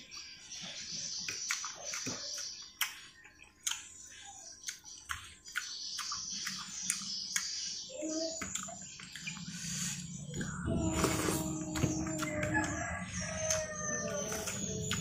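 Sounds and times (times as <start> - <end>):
man chewing and mouth smacks: 1.2 - 7.6, 8.4 - 10.6.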